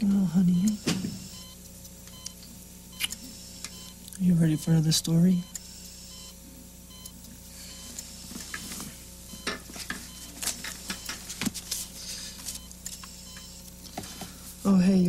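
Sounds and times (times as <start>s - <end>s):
steady low hum: 0.0s - 15.0s
book being handled: 9.7s - 12.6s.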